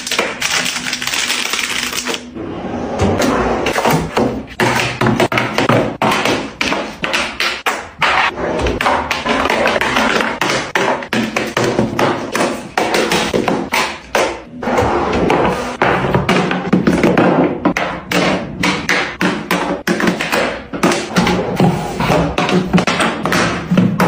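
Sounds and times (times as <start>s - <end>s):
palettes tapping and clacking: 3.8s - 8.2s, 8.8s - 14.5s.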